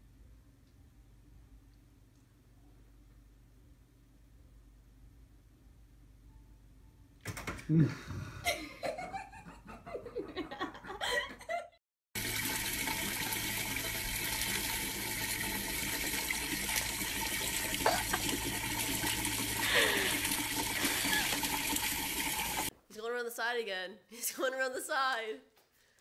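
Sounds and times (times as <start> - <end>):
water pouring from tap: 12.2 - 22.7.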